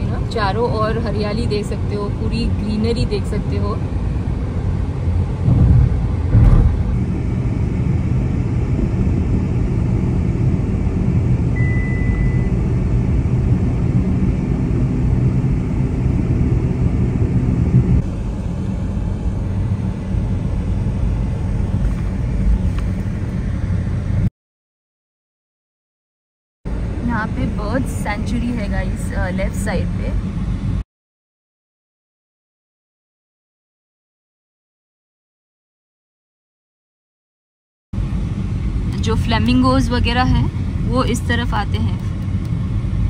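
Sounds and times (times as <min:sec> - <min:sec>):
car road and engine rumble: 0:00.0 - 0:24.3, 0:26.7 - 0:30.8, 0:38.0 - 0:43.0
brief thumps: 0:05.4 - 0:07.0.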